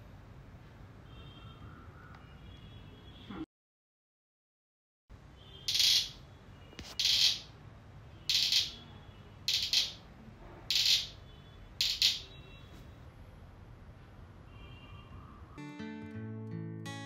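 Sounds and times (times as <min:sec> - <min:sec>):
scratchy cricket noisemaker chirps: 0:05.7 - 0:06.2, 0:06.9 - 0:07.5, 0:08.3 - 0:08.8, 0:09.5 - 0:10.0, 0:10.7 - 0:11.2.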